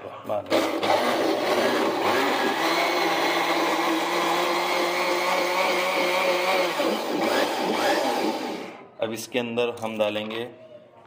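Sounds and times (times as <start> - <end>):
blender motor whirring: 0.5 - 8.8.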